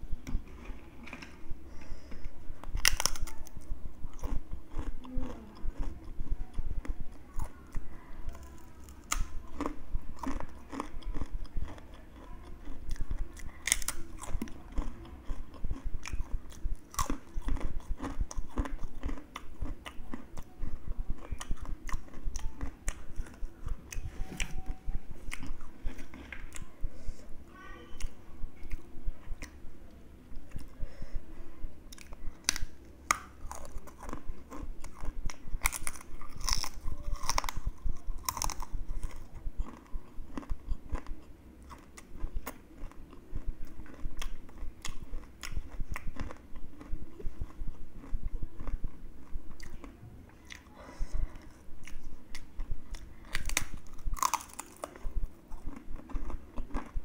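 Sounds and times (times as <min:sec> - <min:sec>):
person crunching chips: 0:02.7 - 0:05.9, 0:08.4 - 0:20.2, 0:31.9 - 0:48.8, 0:51.8 - 0:57.0.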